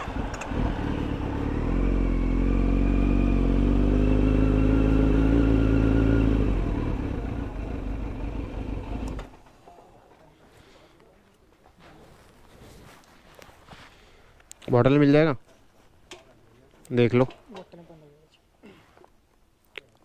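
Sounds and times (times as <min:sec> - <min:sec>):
motorcycle engine at low revs: 0:00.0 - 0:09.4.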